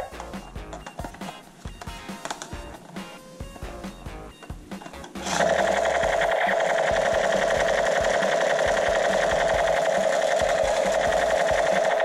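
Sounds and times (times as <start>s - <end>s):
toy gun buzzing rattle: 4.8s - 12.0s.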